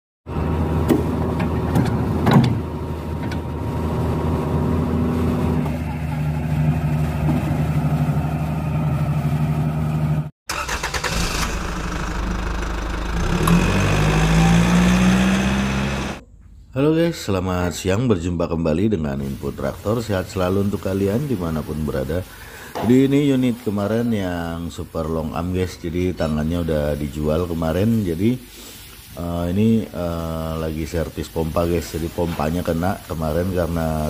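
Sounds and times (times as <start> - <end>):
diesel engines running: 0.3 - 16.2
diesel engine revving: 3.7 - 16.2.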